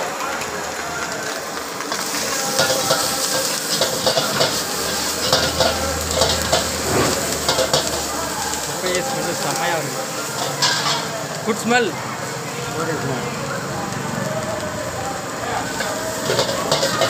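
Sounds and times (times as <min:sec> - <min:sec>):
food sizzling in a wok: 0:00.0 - 0:17.0
ladle scraping and clanking on wok: 0:01.9 - 0:11.4, 0:15.7 - 0:17.0.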